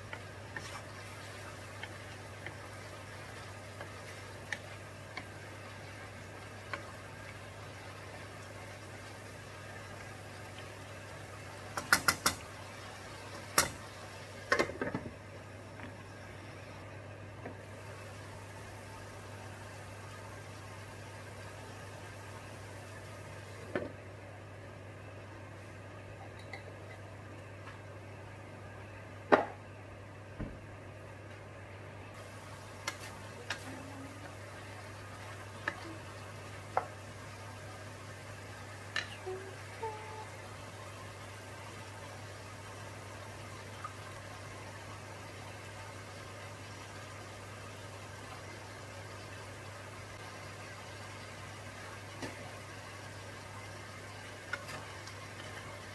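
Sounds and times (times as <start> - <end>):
wooden spatula stirring in wok: 0.0 - 9.2
faint sizzle: 0.0 - 55.9
spatula clicks against pan: 11.8 - 12.4.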